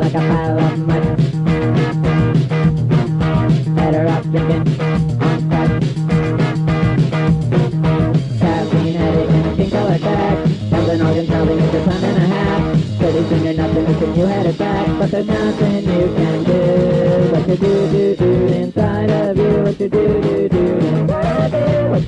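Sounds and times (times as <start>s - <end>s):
person singing: 0.0s - 1.4s, 3.5s - 5.8s, 8.4s - 22.0s
rock band playing: 0.0s - 22.0s.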